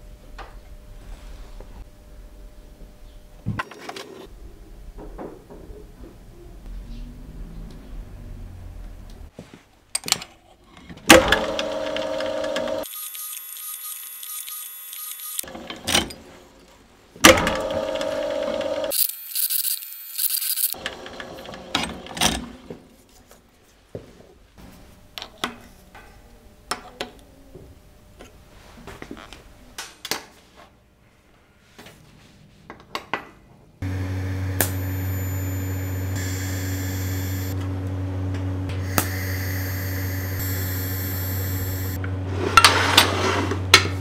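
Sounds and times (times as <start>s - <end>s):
drill press boring into steel: 11.1s - 15.4s, 17.3s - 21.7s
steady low hum: 33.8s - 42.4s.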